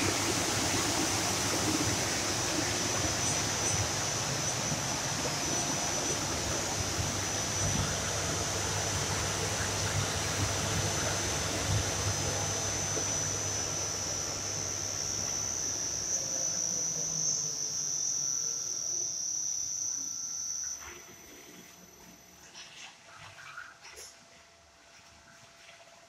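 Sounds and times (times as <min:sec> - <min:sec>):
fan rush of air: 0:00.0 - 0:17.6
fan motor high-pitched whine: 0:00.0 - 0:23.6.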